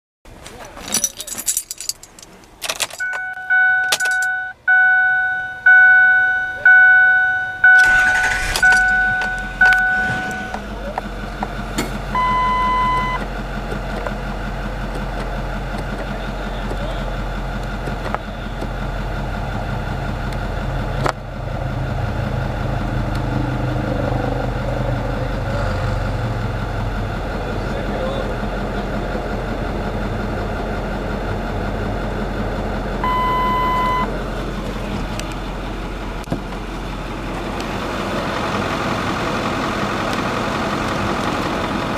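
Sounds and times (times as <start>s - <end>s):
diesel engine cranking and idling: 0.3s - 41.9s
dashboard warning chime dinging: 2.9s - 10.7s, 12.2s - 13.3s, 33.0s - 34.1s
single beep: 3.0s - 10.6s, 12.2s - 13.2s, 33.0s - 34.1s.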